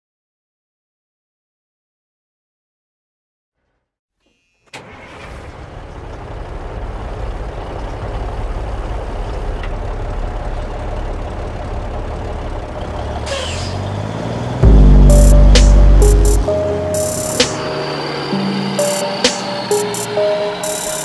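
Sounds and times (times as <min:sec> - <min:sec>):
diesel truck engine rumble: 0:04.8 - 0:21.0.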